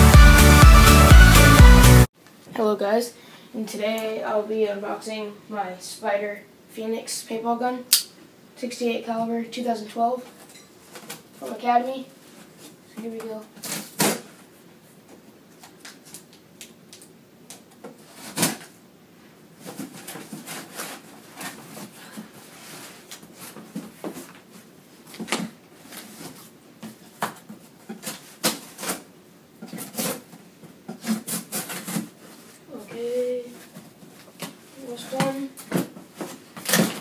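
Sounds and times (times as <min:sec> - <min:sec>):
scraping on cardboard box: 0:19.6 - 0:24.3, 0:30.9 - 0:32.6.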